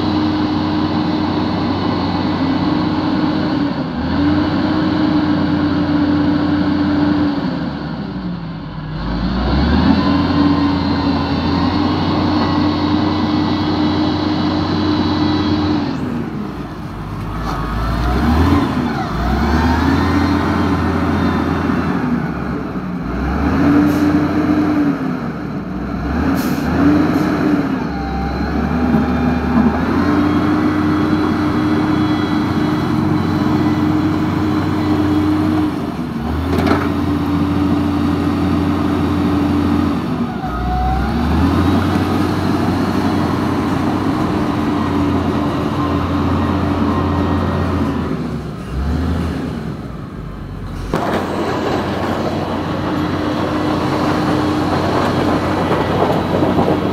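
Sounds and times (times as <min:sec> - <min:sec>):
pushing dirt: 0:50.7 - 0:56.9.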